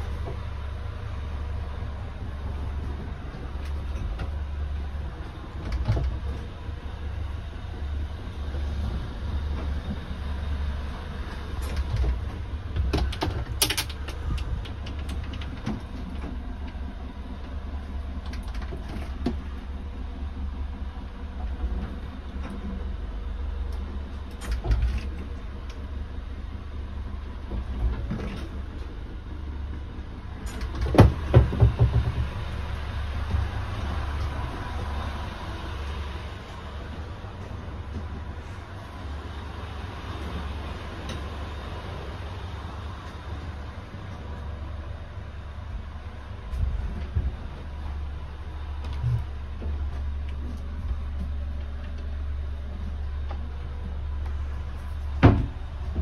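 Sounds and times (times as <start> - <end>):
low rumble: 0.0 - 56.0
knocks: 30.9 - 32.3.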